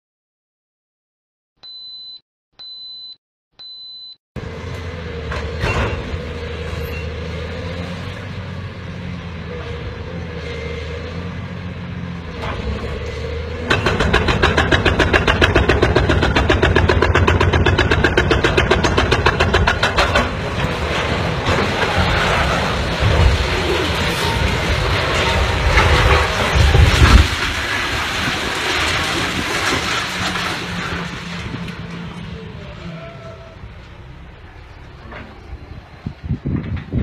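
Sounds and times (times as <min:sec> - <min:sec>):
short high beeps: 0:01.6 - 0:04.2.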